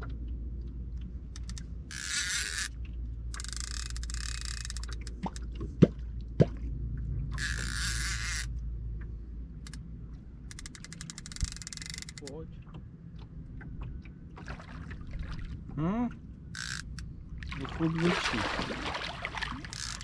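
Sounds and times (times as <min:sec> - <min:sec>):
hollow plops in water: 0:04.9 - 0:07.4, 0:12.7 - 0:16.2, 0:17.4 - 0:20.0
water rushing swishes: 0:14.3 - 0:15.8, 0:17.4 - 0:20.0.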